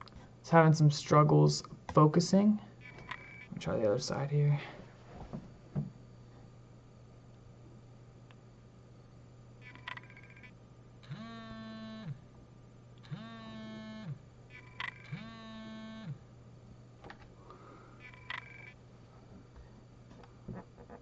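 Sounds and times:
electric buzzes sliding in pitch: 0:09.6 - 0:12.2, 0:13.0 - 0:16.2.

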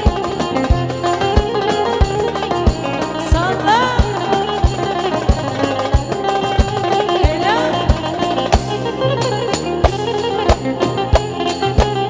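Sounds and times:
band playing instrumental: 0:00.0 - 0:12.0
darbuka rhythm: 0:00.0 - 0:12.0.

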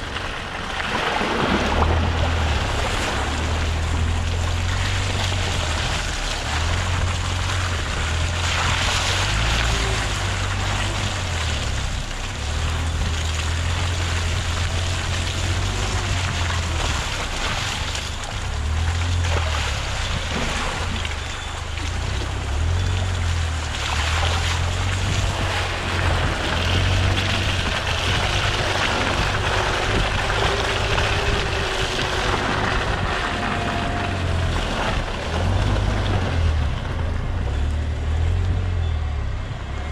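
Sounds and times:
tyre and driving noise: 0:00.0 - 0:39.9
wind buffeting on microphone: 0:23.1 - 0:37.2.

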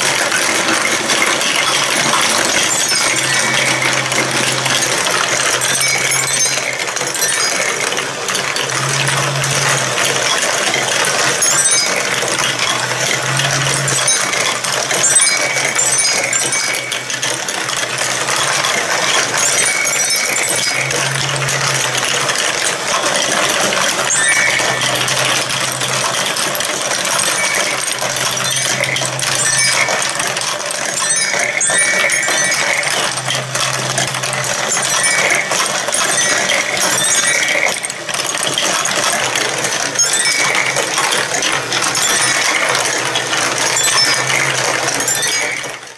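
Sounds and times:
marbles clattering along plastic run: 0:00.0 - 0:45.9.

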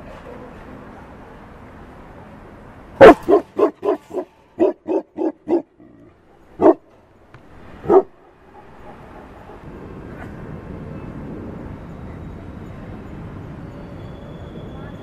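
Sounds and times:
dog barking: 0:03.0 - 0:05.7, 0:06.3 - 0:06.9, 0:07.8 - 0:09.7.

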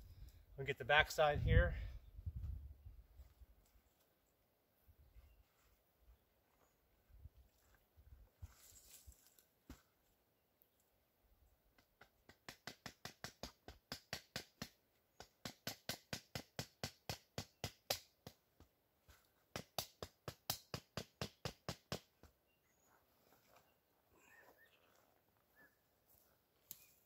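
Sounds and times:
wooden club knocking a stake: 0:11.8 - 0:18.7, 0:19.5 - 0:22.4.

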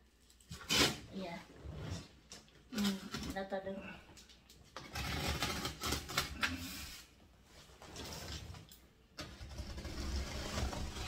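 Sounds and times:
scissors slitting packing tape: 0:00.2 - 0:01.0, 0:04.8 - 0:06.8.

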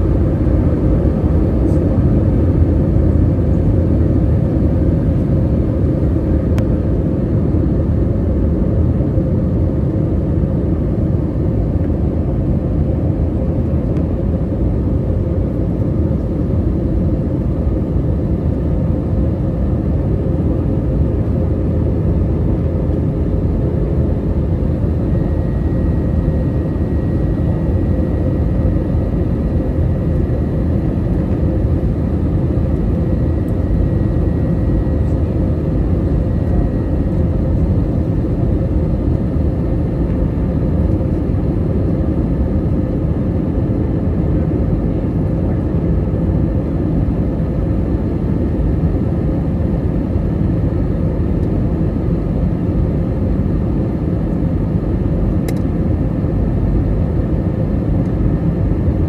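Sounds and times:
airliner cabin rumble: 0:00.0 - 0:59.0
faint high whine: 0:11.8 - 0:49.7.

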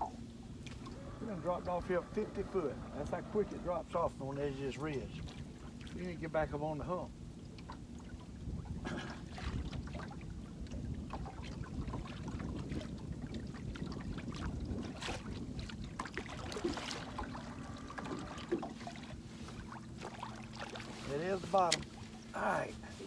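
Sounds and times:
water and wind against hull: 0:00.0 - 0:23.0.

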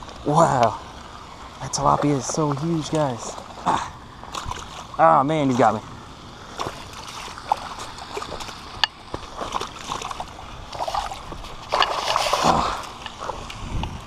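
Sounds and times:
water splash: 0:02.3 - 0:05.7, 0:06.5 - 0:13.6
twigs and leaves crackling: 0:06.5 - 0:14.0.

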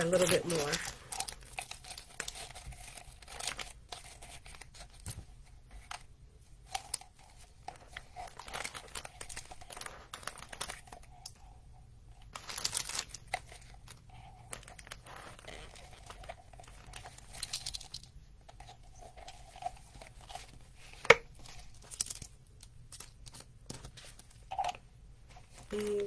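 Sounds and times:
paper shred crinkling: 0:00.0 - 0:05.2, 0:12.3 - 0:17.8.

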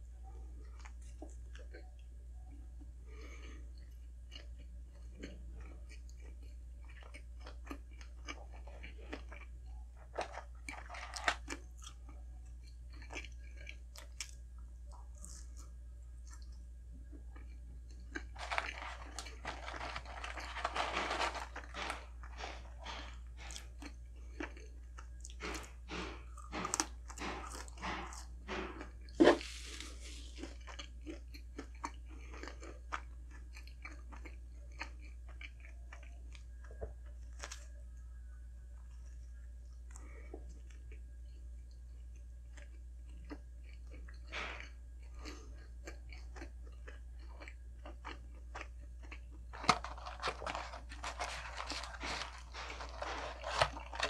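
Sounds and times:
chewing and crunching: 0:00.0 - 0:54.0.

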